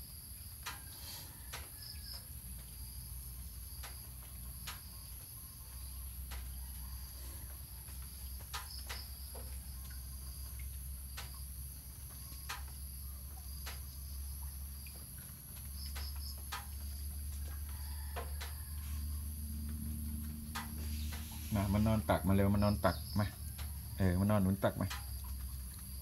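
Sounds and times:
insects droning: 0.0s - 26.0s.

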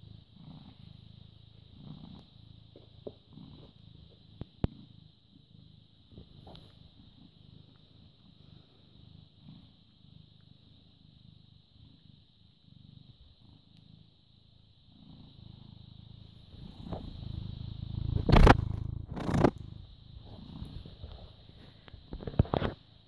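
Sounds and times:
cat purring: 0.0s - 23.0s
fur rubbing against microphone: 18.1s - 21.7s.

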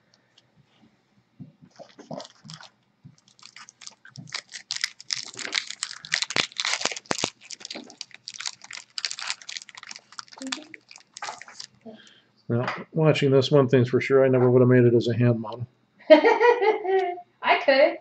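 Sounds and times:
wrapper and cards crackling: 1.7s - 11.8s.

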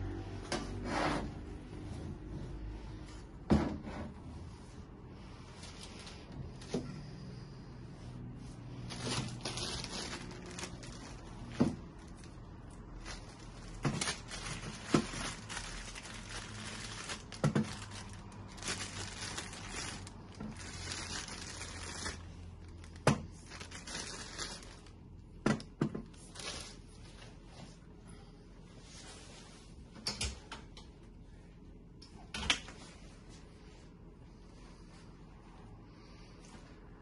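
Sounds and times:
plastic bags crinkling and tearing: 8.6s - 26.9s.

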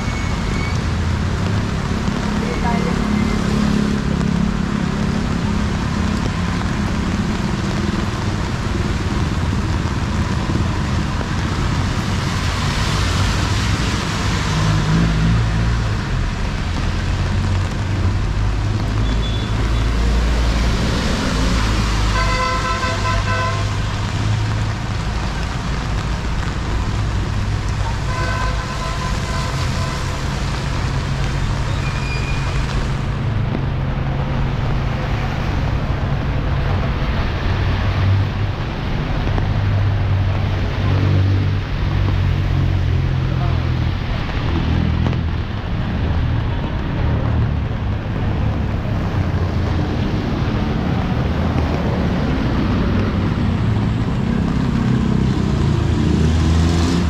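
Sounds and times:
rain and wet road hiss: 0.0s - 57.0s
vehicle horn: 22.1s - 23.8s, 28.1s - 30.0s.

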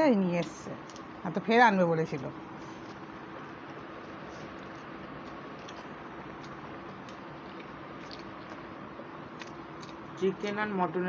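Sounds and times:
low background hum: 0.0s - 11.0s
chewing and lip smacks: 2.6s - 10.2s.

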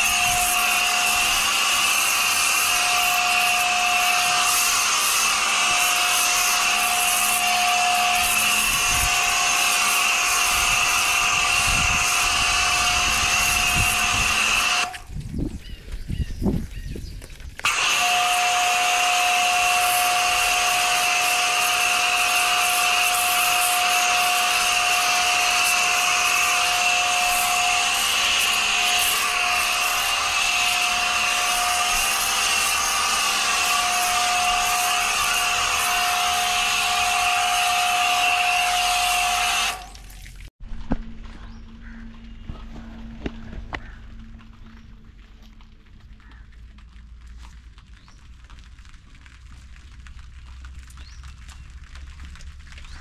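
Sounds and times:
pressure washer humming: 0.0s - 15.1s, 17.6s - 40.4s.

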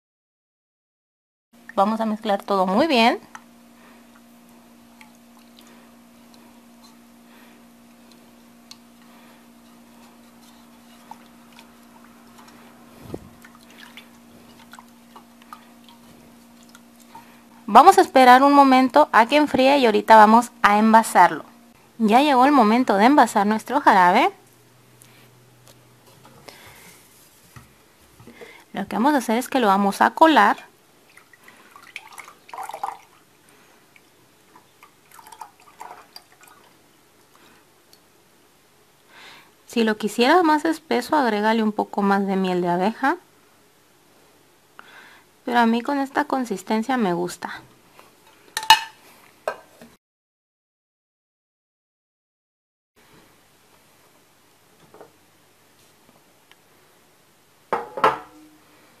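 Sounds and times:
faint steady hum: 1.6s - 49.9s, 53.0s - 59.0s
liquid swishing in a pot: 3.3s - 17.7s
syrup dripping through a strainer: 31.2s - 33.2s.

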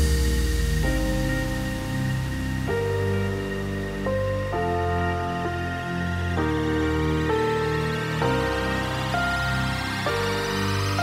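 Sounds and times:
music of held chords: 0.0s - 11.0s.

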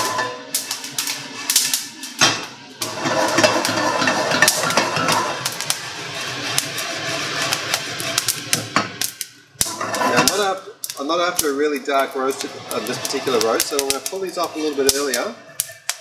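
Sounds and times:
coffee beans rattling in a pan: 0.0s - 16.0s
coffee beans cracking pops: 7.5s - 9.7s, 10.8s - 11.6s, 12.7s - 16.0s.

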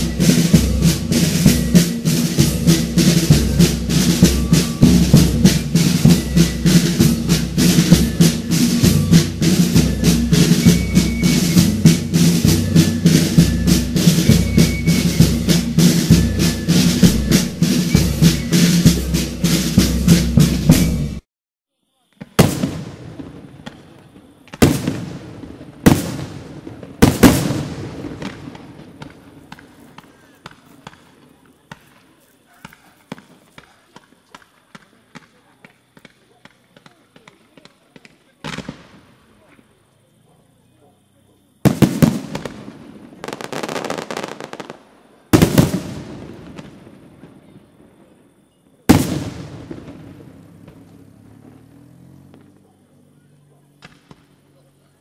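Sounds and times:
drum-heavy music: 0.0s - 21.2s
fireworks banging: 0.0s - 21.2s, 22.0s - 39.8s, 41.6s - 54.6s.

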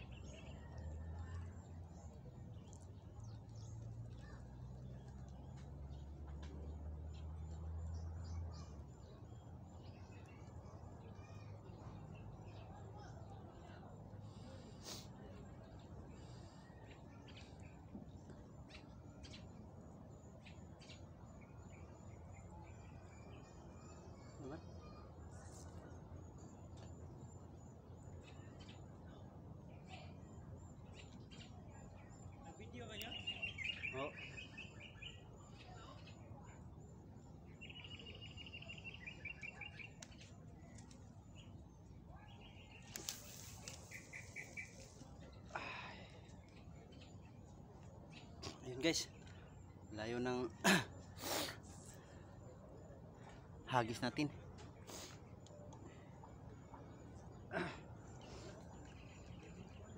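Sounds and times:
faint low outdoor rumble: 0.0s - 59.9s
small birds chirping: 0.0s - 59.9s
rustle: 42.8s - 45.2s.

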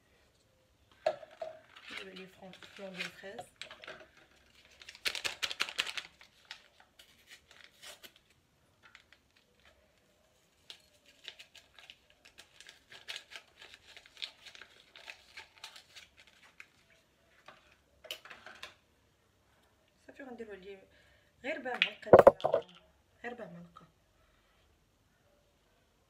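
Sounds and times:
packet crinkling: 2.6s - 8.2s
packet tearing open: 4.4s - 8.3s, 10.7s - 16.6s.

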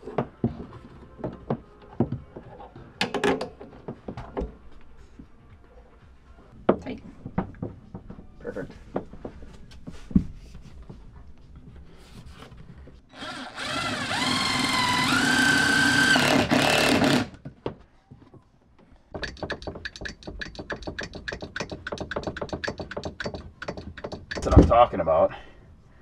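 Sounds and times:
cordless drill whining: 13.1s - 17.4s.

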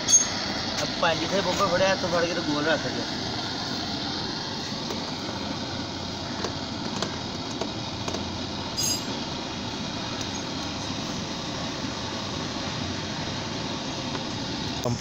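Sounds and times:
steady background noise: 0.0s - 15.0s
short clink: 8.8s - 9.1s.

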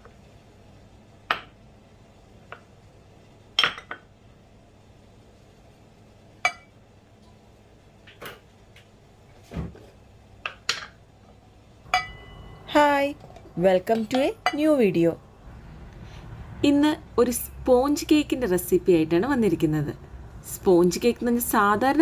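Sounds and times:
glass bowls clinking on countertop: 3.6s - 4.0s, 6.4s - 6.7s, 11.9s - 12.7s.

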